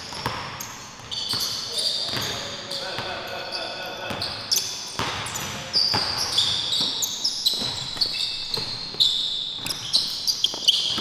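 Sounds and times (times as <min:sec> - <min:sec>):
sneakers squeaking on floor: 0:00.0 - 0:11.0.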